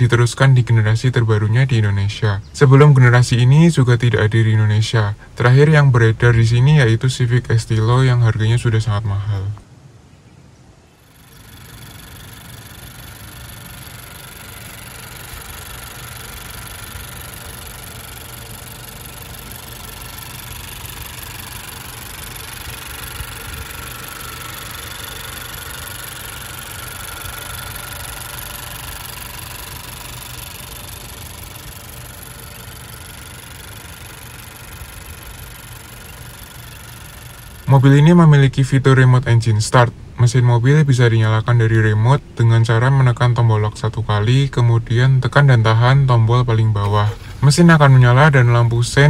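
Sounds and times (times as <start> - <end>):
car engine idling: 11.1 - 39.0.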